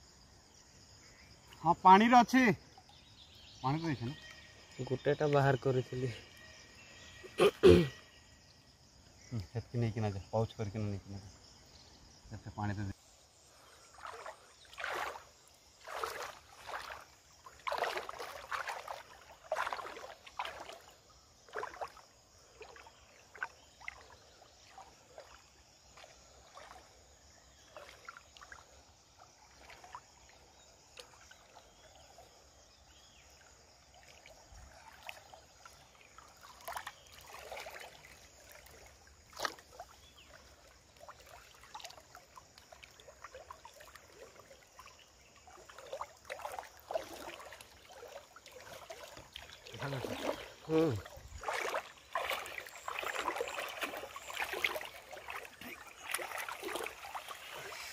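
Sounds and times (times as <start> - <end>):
water splashing and sloshing: 13.0 - 57.9.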